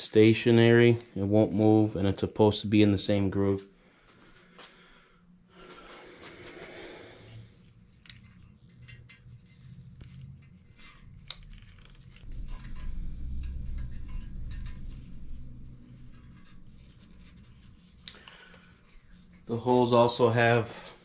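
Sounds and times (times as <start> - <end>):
low rumble: 11.9 - 18.0.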